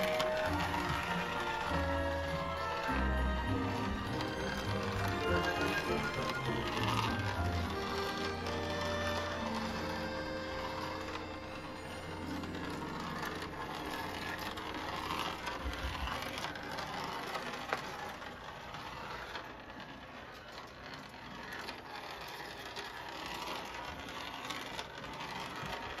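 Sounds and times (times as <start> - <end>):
small clicks: 0.0 - 26.0
toy motor whirring rattle: 0.0 - 26.0.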